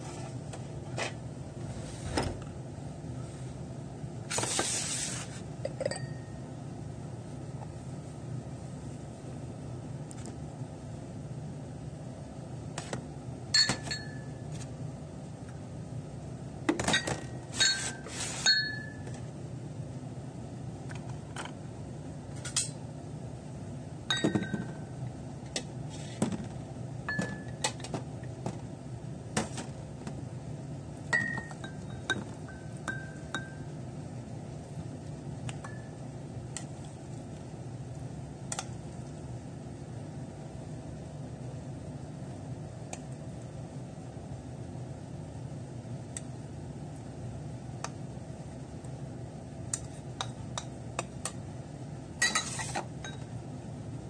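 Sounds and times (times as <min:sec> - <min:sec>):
porcelain cups clinking: 0:05.7 - 0:06.2, 0:13.6 - 0:14.3, 0:16.9 - 0:19.1, 0:24.1 - 0:24.8, 0:52.2 - 0:53.2.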